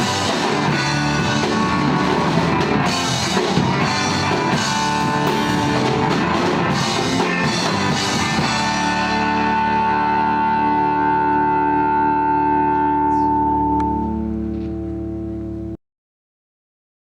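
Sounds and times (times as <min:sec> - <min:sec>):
drum kit with cymbals: 0:00.0 - 0:10.9
bass guitar: 0:00.0 - 0:15.8
electric guitars: 0:00.0 - 0:15.8.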